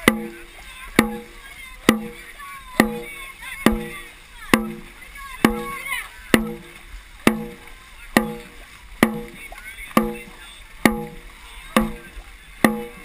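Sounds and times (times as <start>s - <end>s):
drum beats: 0.0s - 13.0s
paddles in water: 0.0s - 13.0s.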